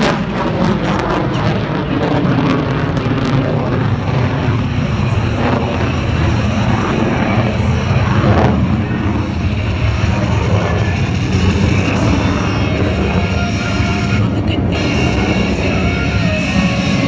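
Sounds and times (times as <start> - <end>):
jet aircraft rumbling overhead: 0.0 - 17.0.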